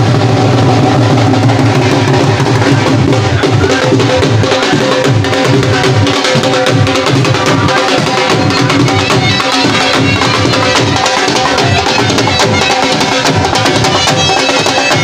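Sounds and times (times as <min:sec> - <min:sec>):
drums beaten in fast rhythm: 0:00.0 - 0:15.0.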